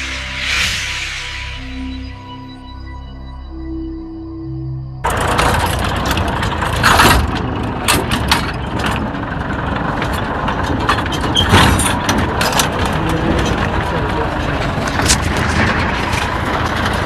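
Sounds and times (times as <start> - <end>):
tractor engine running: 5.0 - 17.0
clattering knocks from machine: 5.2 - 13.8.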